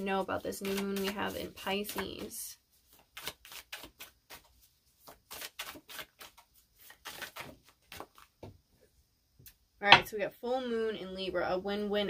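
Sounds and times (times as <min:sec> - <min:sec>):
cards being shuffled: 0:00.4 - 0:08.4.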